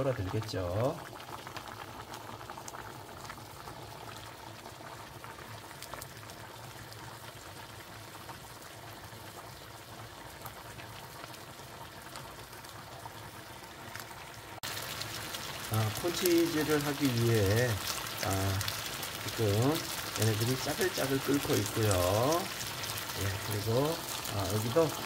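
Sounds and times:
water boiling with small pops: 0:00.0 - 0:25.0.

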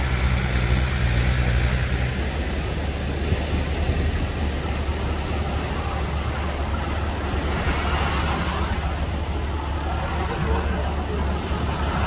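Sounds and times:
outboard motor running: 0:00.0 - 0:03.3
waves breaking: 0:00.1 - 0:12.0.

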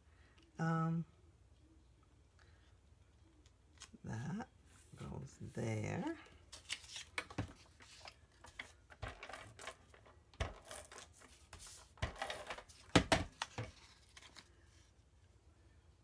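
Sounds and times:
paper rustling and sliding: 0:06.5 - 0:14.9.

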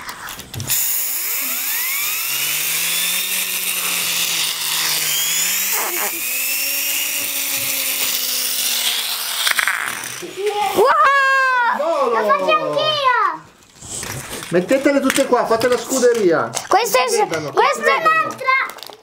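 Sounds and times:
toy turbine whirring whine: 0:00.0 - 0:11.0.

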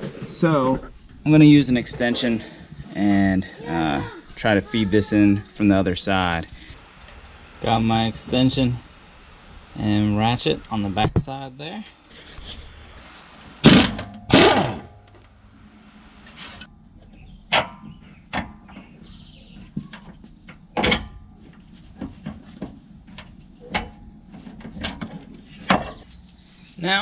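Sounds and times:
pneumatic impact wrench hammering: 0:13.6 - 0:15.1.

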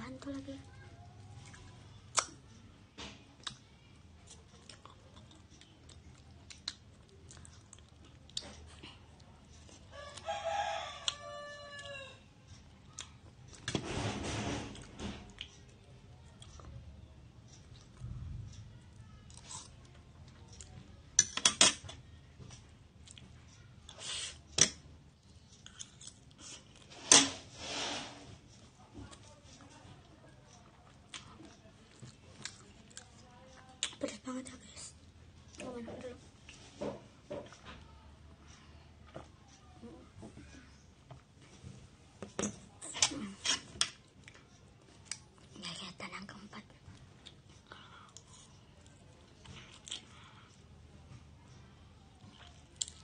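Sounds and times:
quiet chewing: 0:00.2 - 0:02.6, 0:03.2 - 0:13.7, 0:14.8 - 0:20.9, 0:22.4 - 0:24.4, 0:25.1 - 0:26.9, 0:28.4 - 0:36.8, 0:37.4 - 0:53.0
chewing: 0:03.4 - 0:10.3, 0:17.5 - 0:20.8, 0:23.0 - 0:24.0, 0:25.2 - 0:26.9, 0:30.5 - 0:34.2, 0:46.8 - 0:50.5, 0:51.5 - 0:53.0.

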